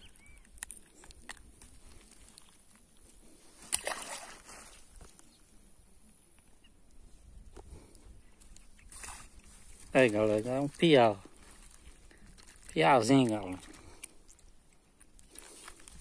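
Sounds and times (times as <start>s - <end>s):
fish splashing into water: 3.6s - 4.8s.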